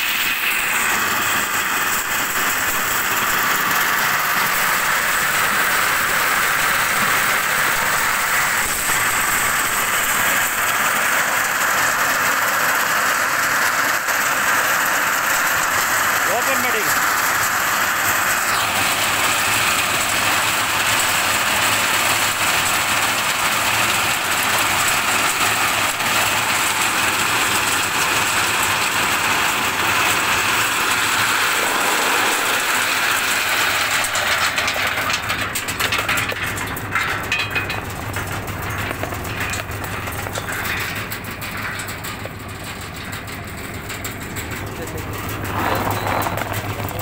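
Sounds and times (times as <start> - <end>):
nuts rattling through machine: 0.1 - 47.0
machine motor humming: 30.7 - 34.5.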